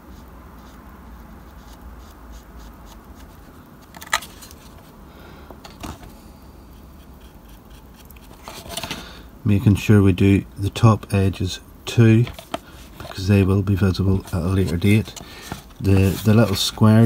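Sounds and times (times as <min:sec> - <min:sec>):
paintbrush scratching on plastic: 0:00.0 - 0:03.5, 0:14.1 - 0:17.0.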